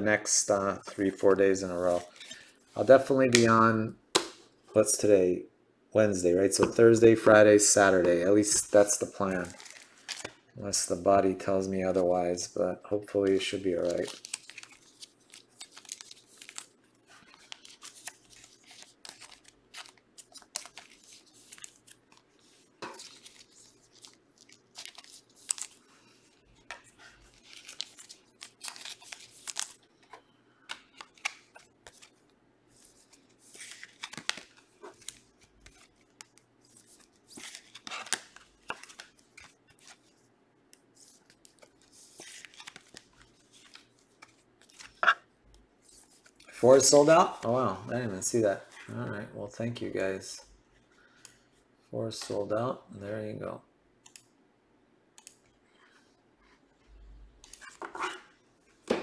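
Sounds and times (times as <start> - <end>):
cards rustling and clicking: 6.5 - 10.5, 13.1 - 45.2
card pack wrappers ripping: 13.6 - 22.2, 22.8 - 25.8, 27.2 - 29.8, 33.5 - 36.2, 36.9 - 40.0.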